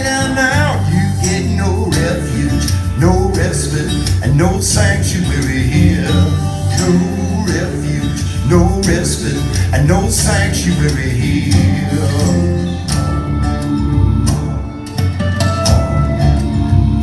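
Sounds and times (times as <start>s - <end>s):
country folk song over loudspeakers: 0.0s - 17.0s
steady bass line: 0.0s - 17.0s.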